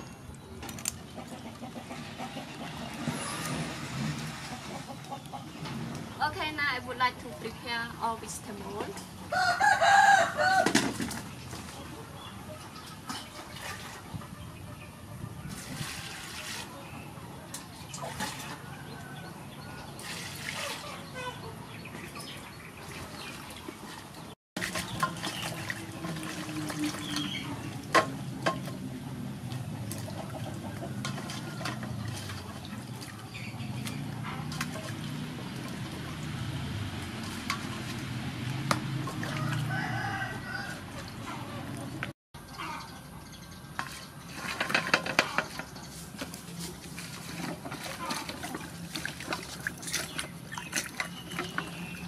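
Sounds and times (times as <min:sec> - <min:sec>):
water pouring and splashing: 0:09.9 - 0:14.2, 0:15.4 - 0:42.1, 0:43.7 - 0:52.0
hands swishing vegetables in water: 0:45.9 - 0:52.0.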